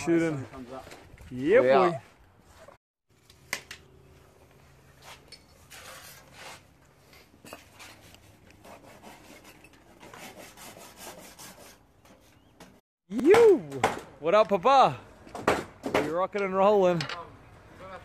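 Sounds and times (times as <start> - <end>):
handsaw cutting wood: 7.8 - 11.8.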